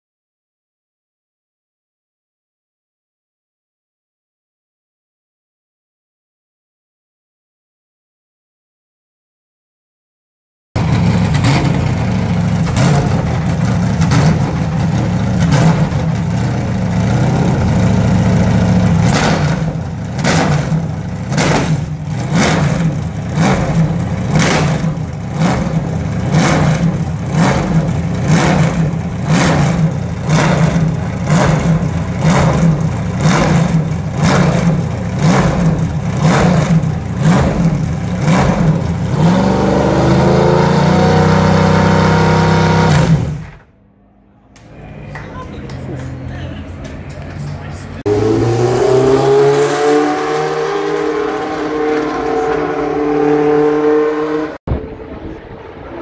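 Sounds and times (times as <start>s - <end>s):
racing car engine at low revs: 10.8s - 43.7s, 45.8s - 56.0s.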